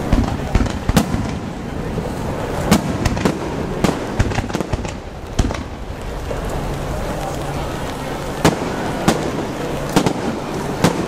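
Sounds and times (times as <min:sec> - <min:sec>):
steady background noise: 0:00.0 - 0:11.0
firework shells banging: 0:02.5 - 0:06.5, 0:07.9 - 0:11.0.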